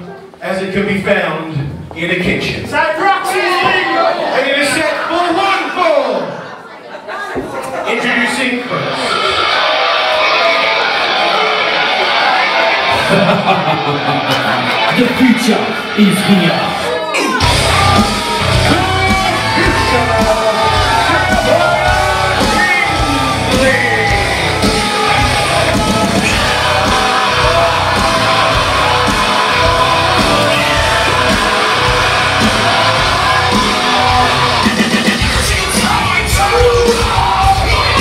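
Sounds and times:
song with shouted vocals: 8.7 - 38.0.

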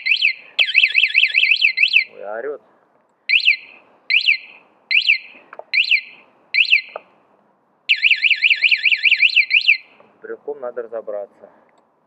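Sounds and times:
alarm siren chirping and warbling: 0.0 - 2.2, 3.3 - 7.0, 7.9 - 10.0.

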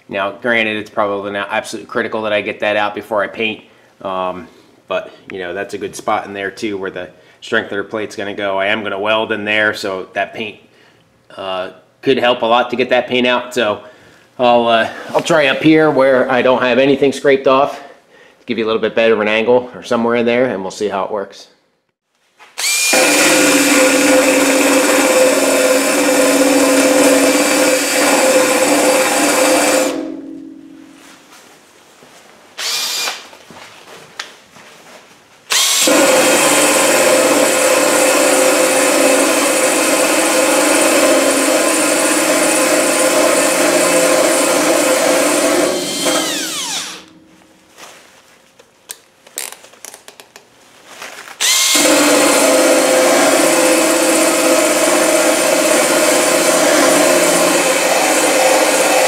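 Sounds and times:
drill grinding paint off metal: 22.6 - 30.0, 32.6 - 33.2, 35.5 - 47.1, 51.4 - 59.0.

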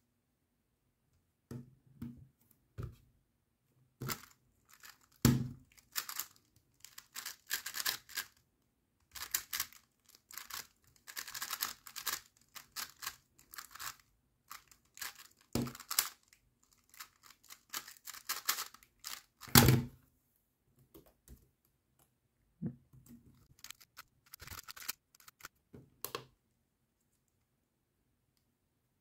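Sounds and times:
puzzle cube clicking: 9.2 - 16.3, 16.9 - 19.3, 23.5 - 25.5.

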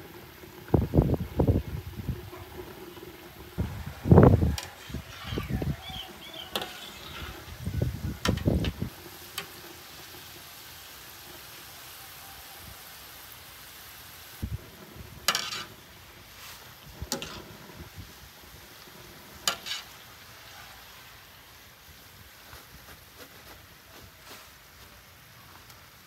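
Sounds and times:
food sizzling in a pan: 0.0 - 26.0
utensil scraping a pan: 4.5 - 9.6, 15.2 - 17.9, 19.2 - 20.8.

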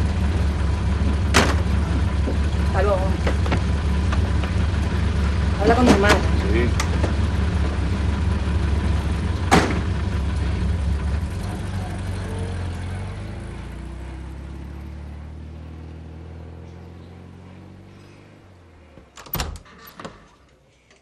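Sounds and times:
car driving off: 0.0 - 19.0
car engine idling: 0.0 - 19.0
car door slamming: 1.3 - 1.8, 9.5 - 10.0.

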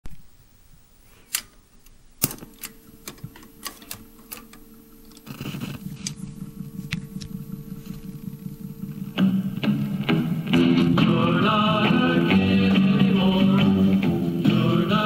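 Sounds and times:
record hiss and low pulsing: 0.0 - 15.0
record changer mechanism clicking: 1.3 - 9.8
motor hum: 2.5 - 12.3.

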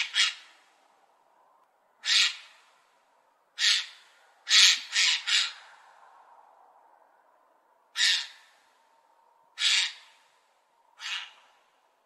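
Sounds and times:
magpie harsh calls: 0.0 - 0.7, 2.0 - 2.6, 3.6 - 5.6, 7.9 - 8.5, 9.6 - 10.2, 11.0 - 11.6.

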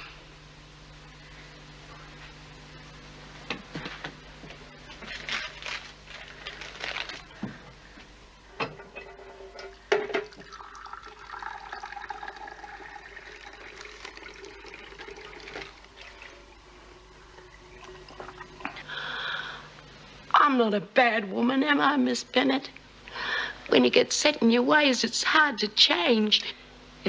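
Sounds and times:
tap water running into vessel: 10.2 - 16.3.

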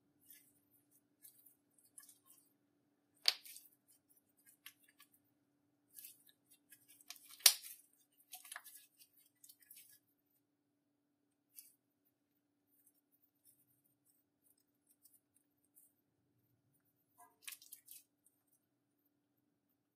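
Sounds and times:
slime crackling being handled: 5.9 - 10.1.

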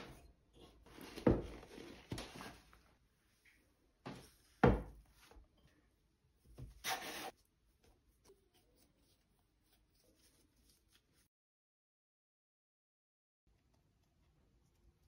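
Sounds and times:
hands rubbing dough: 6.5 - 11.3.

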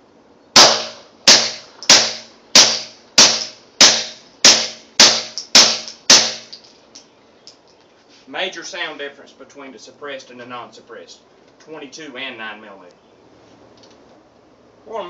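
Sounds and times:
suppressed pistol shots: 0.6 - 6.6.

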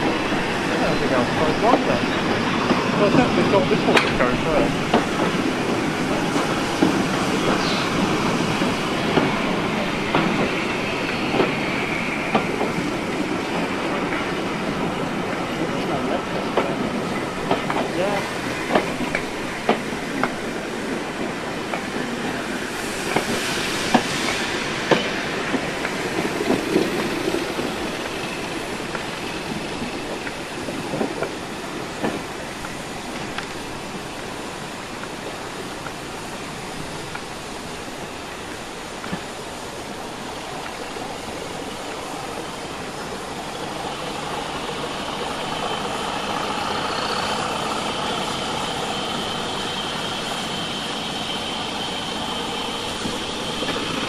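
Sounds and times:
train wheels clicking over rail joints: 0.0 - 54.0
diesel locomotive engine running: 40.7 - 54.0.

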